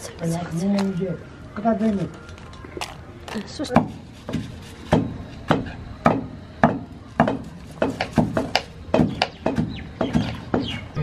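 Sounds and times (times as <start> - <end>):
knife chopping on wooden board: 3.7 - 10.8
pestle pounding in wooden mortar: 3.7 - 10.8.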